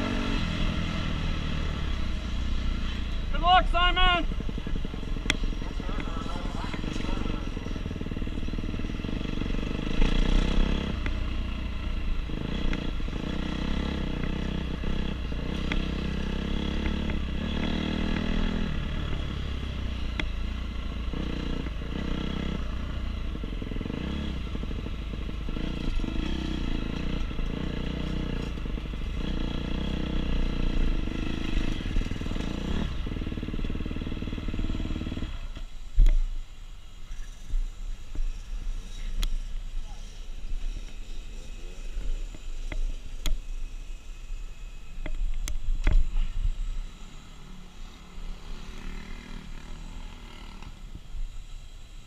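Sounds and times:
dirt bike engine revving: 0.0 - 35.7, 45.8 - 51.0.

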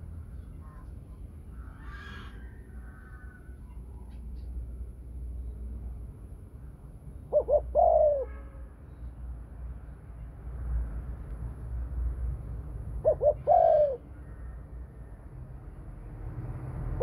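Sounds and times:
dove cooing: 7.3 - 8.3, 13.0 - 14.1.

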